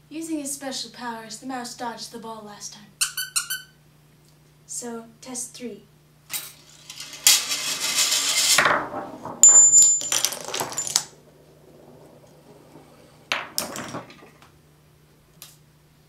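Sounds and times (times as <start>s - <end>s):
marble rolling down plastic track: 6.5s - 14.6s
clattering and metallic clinks: 9.4s - 11.1s.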